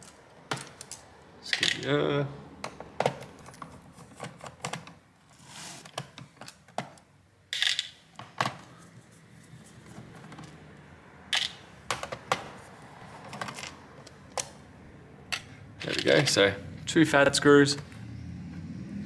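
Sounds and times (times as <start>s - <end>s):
screws clattering: 7.6s - 7.9s.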